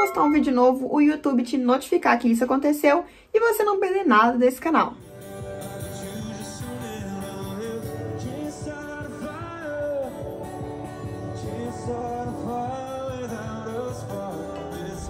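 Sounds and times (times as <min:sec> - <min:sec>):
song with singing voice: 0:05.0 - 0:15.0.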